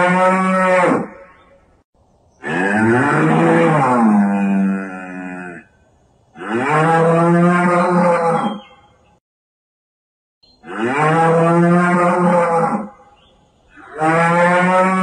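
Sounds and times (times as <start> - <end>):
cow mooing: 2.4 - 5.6, 10.6 - 12.9, 13.8 - 15.0.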